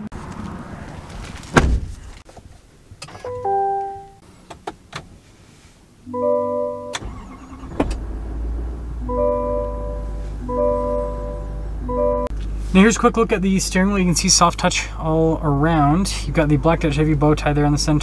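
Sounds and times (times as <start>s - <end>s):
diesel engine starting and idling: 6.2s - 18.0s
electronic warning chimes: 9.0s - 12.3s.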